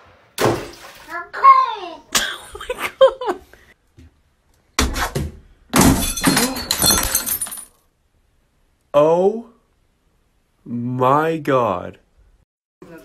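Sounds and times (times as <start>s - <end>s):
clattering crash with glassy clinks: 5.8s - 7.8s.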